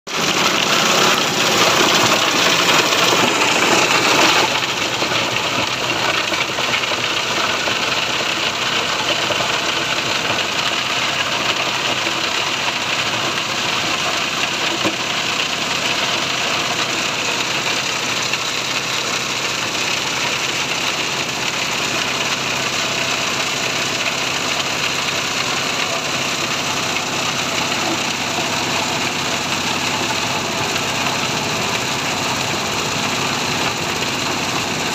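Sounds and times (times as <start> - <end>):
crusher whirring and rattling: 0.1 - 6.3
small engine running: 0.1 - 34.9.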